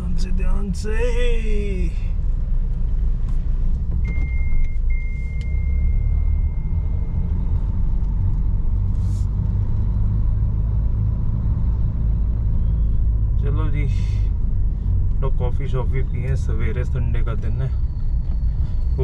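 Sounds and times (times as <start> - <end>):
car engine and road noise: 0.0 - 19.0
thin high beep: 4.1 - 7.2.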